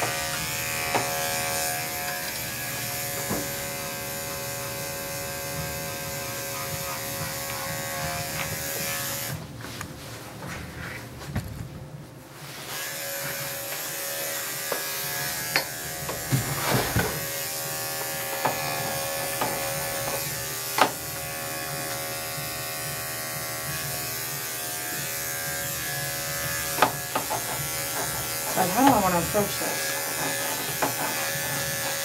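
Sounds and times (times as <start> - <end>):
electric clipper buzzing: 0.0 - 9.4, 12.6 - 32.0.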